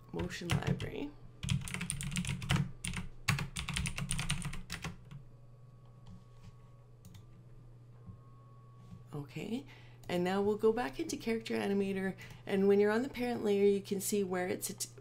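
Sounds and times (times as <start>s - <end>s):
typing on keyboard: 0.2s - 5.2s.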